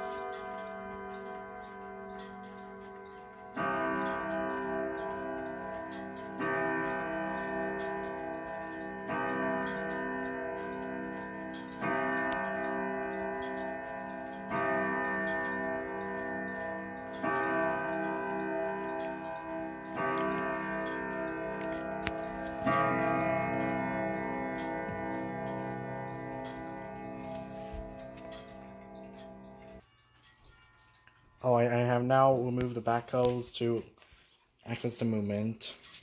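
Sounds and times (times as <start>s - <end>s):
grandfather clock striking: 0.0s - 32.8s.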